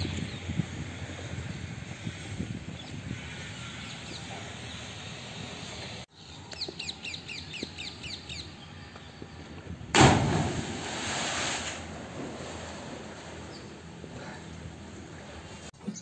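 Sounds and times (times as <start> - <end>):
loud splash into water: 9.9 - 12.9.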